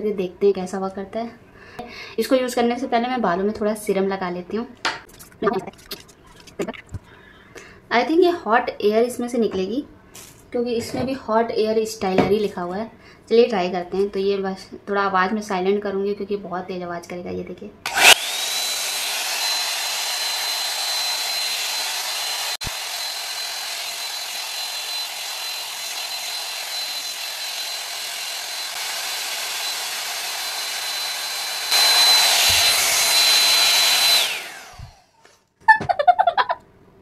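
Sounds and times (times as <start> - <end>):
hot air styler fan whine: 17.9 - 35.2.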